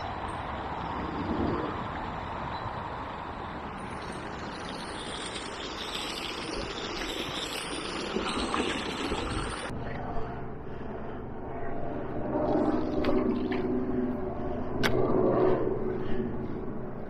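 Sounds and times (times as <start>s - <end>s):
water pouring into a river: 3.7s - 9.7s.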